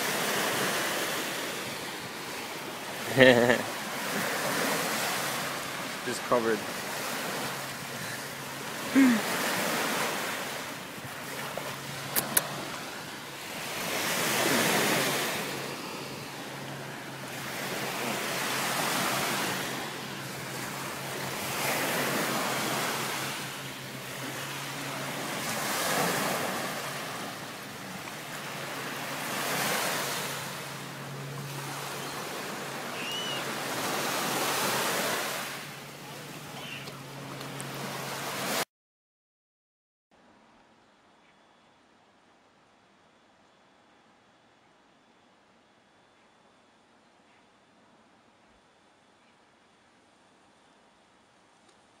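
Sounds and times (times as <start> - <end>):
small waves washing onto shore: 0.0 - 38.6.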